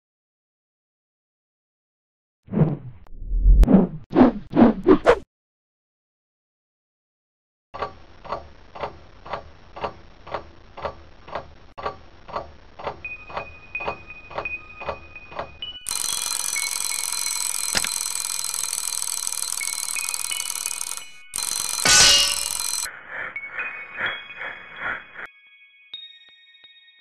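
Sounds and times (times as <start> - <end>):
alarm clock ticking: 7.8 - 25.0
alarm clock bell ringing: 13.0 - 22.9.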